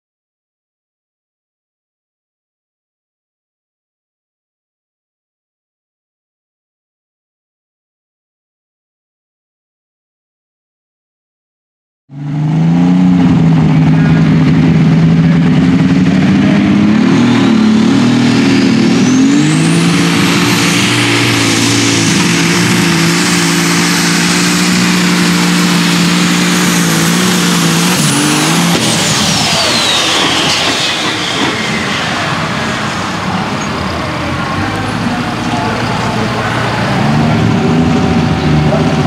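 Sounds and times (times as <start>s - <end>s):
tractor engine under full load: 12.1s - 39.0s
turbo whine: 12.1s - 39.0s.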